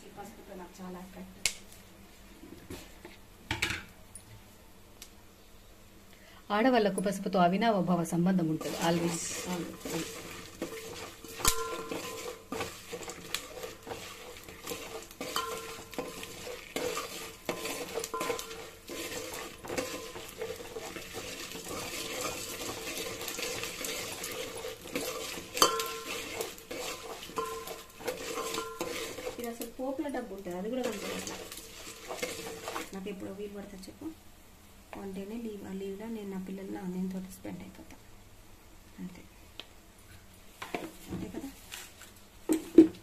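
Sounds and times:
oil sizzling: 6.6 - 37.4
spoon scraping metal pot: 8.4 - 29.7, 30.7 - 33.0
spoon clanging on pot: 9.8 - 29.4.

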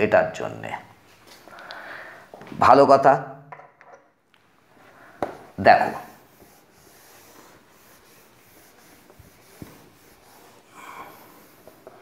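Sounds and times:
cloth rubbing on whiteboard: 5.6 - 12.0.

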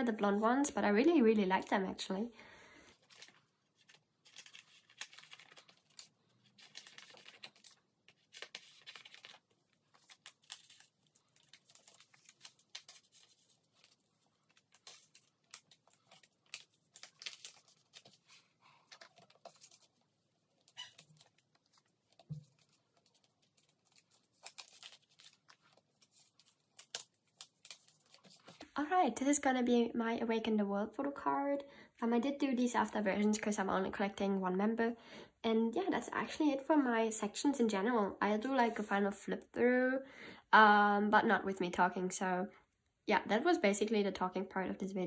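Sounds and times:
plastic binder pages crinkling: 2.9 - 28.8.

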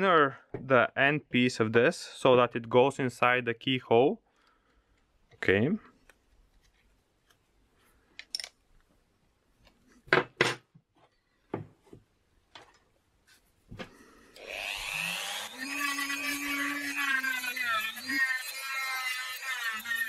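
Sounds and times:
rotary tool motor whining: 14.4 - 20.0.

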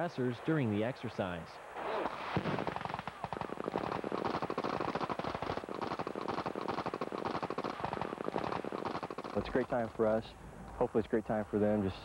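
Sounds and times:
rapid automatic gunfire: 2.1 - 10.1.

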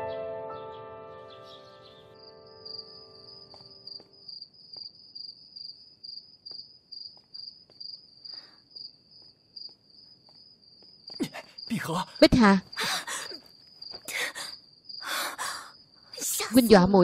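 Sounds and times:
held music chord: 0.0 - 3.9
crickets chirping: 1.9 - 17.0.

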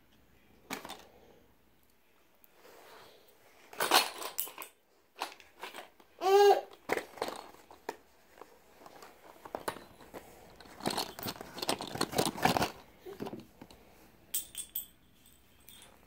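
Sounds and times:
wooden pencils clattering on tile: 3.7 - 16.0
toddler high vocal sound: 6.2 - 6.7.

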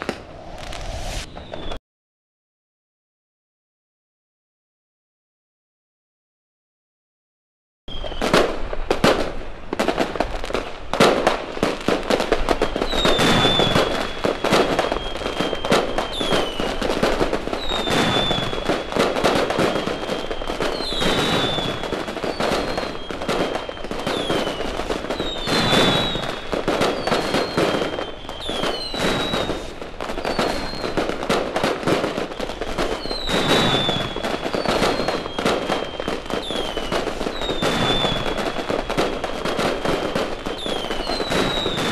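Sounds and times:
firework whistles: 0.0 - 1.8, 7.9 - 9.3, 12.1 - 41.9
fireworks crackling and banging: 0.0 - 1.8, 7.9 - 41.9.

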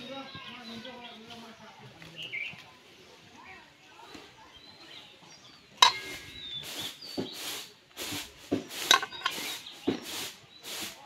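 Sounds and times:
fruit clinking against steel bowl: 5.7 - 6.6, 8.9 - 9.5.

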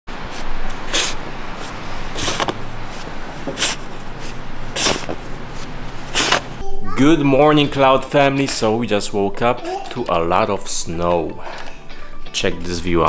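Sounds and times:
snow shovel scraping sidewalk: 0.2 - 6.6.

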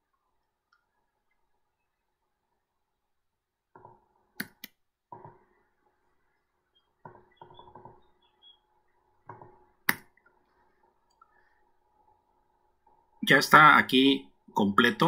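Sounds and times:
faint steady hum: 0.0 - 15.0
mouse clicks: 3.8 - 5.4, 9.3 - 10.3.

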